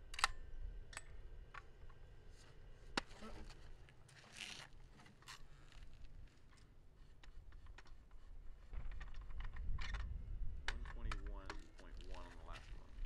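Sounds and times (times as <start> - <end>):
rifle bolt clicks and scrapes: 4.2 - 12.9.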